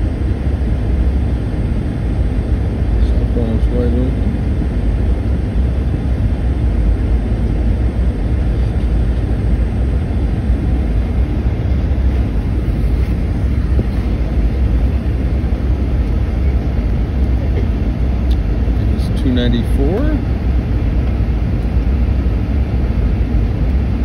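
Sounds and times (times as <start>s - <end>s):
airliner cabin rumble: 0.0s - 24.0s
rush of air: 10.3s - 16.0s.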